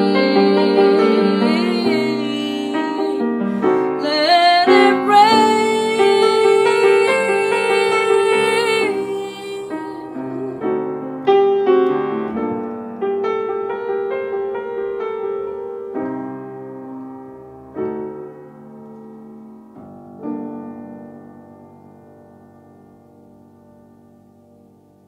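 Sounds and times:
woman singing: 0.0 - 10.8
piano accompaniment: 0.0 - 25.0.

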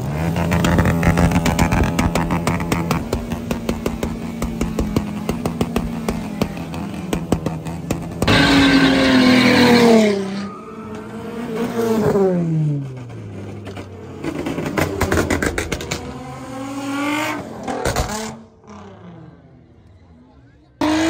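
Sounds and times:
car engine revving hard: 0.0 - 10.4, 20.8 - 21.0
tyre screech on asphalt: 8.1 - 15.4.

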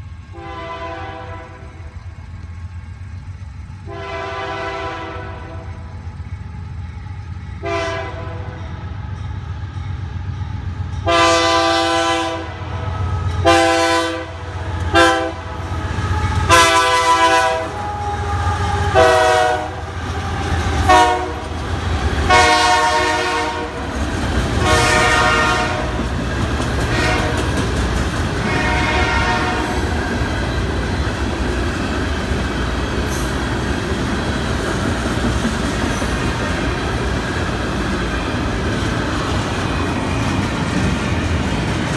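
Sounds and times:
locomotive horn blasts: 0.3 - 1.7, 3.9 - 5.8, 7.6 - 8.7, 11.0 - 21.5, 22.3 - 23.8, 24.6 - 26.0, 26.9 - 27.5, 28.4 - 29.9.

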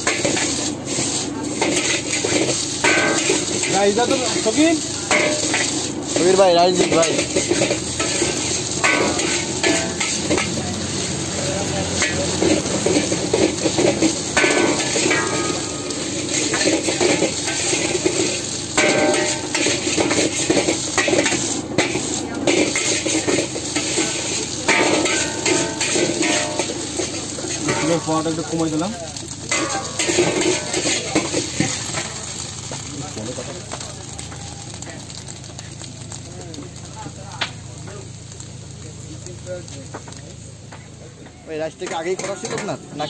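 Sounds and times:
metal spatula scraping a wok: 0.0 - 28.4, 29.5 - 32.5
frying sizzle: 0.0 - 43.0.

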